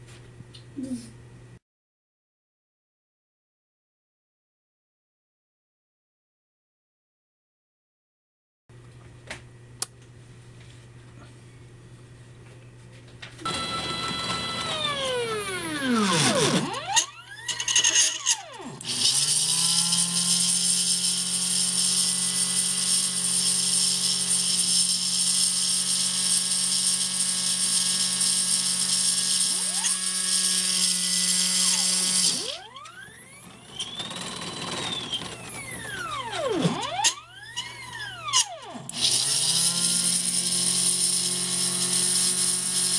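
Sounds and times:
stepper motors whining: 13.4s - 42.9s.

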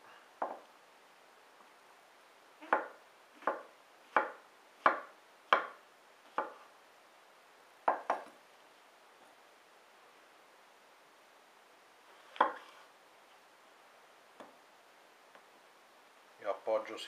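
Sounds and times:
knife chopping on wooden board: 2.6s - 6.6s, 12.3s - 12.6s.

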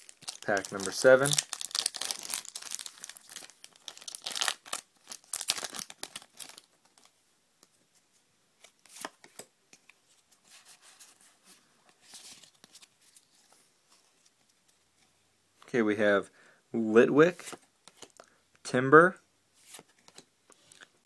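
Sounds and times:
wrapper being torn open: 0.0s - 7.1s
cards rustling and flicking: 8.6s - 11.2s, 17.4s - 18.2s, 19.6s - 20.9s.

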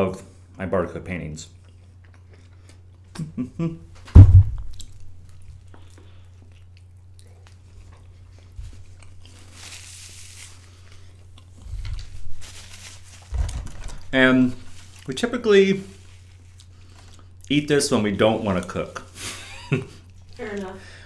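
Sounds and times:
steady low hum: 0.0s - 21.0s
man chewing crunchy pizza: 1.5s - 3.3s, 4.6s - 9.7s, 10.5s - 12.2s, 16.1s - 17.5s, 19.9s - 20.4s
sharp thump: 4.1s - 4.7s.

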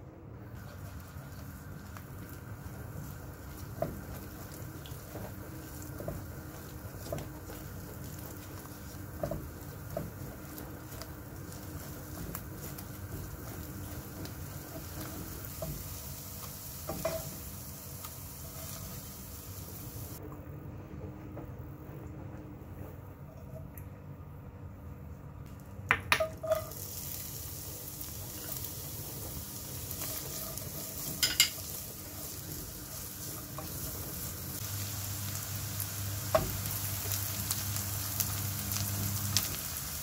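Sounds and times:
eggs sizzling in oil: 0.5s - 20.2s, 25.4s - 40.0s
spatula scraping pan: 3.1s - 17.5s, 29.7s - 34.3s
spatula tapping pan: 3.4s - 17.4s, 25.9s - 26.6s, 30.0s - 31.8s.

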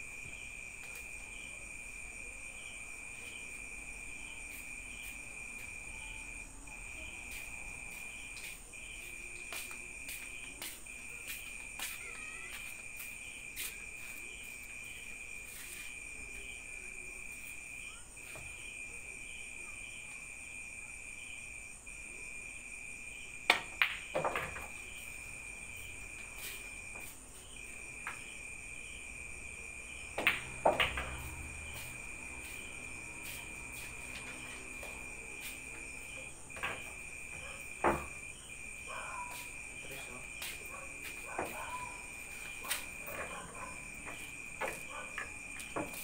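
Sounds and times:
crickets chirring: 0.0s - 46.0s
pool balls clacking: 23.5s - 24.8s, 30.2s - 31.3s
balls rolling on pool table: 23.5s - 25.0s, 30.1s - 38.3s.

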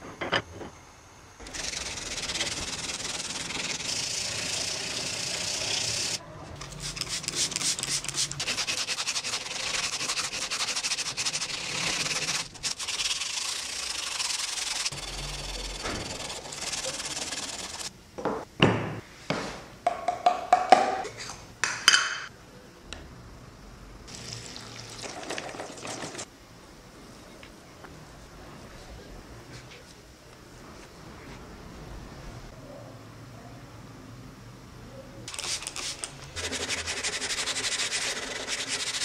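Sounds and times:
sandpaper rubbing on metal: 1.4s - 17.9s, 35.3s - 39.0s.

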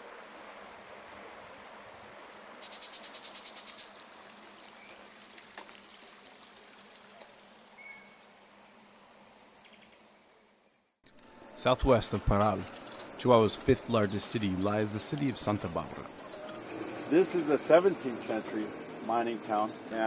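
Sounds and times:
flowing river water: 0.0s - 8.4s, 11.4s - 20.0s
bird chirps: 7.8s - 8.8s.

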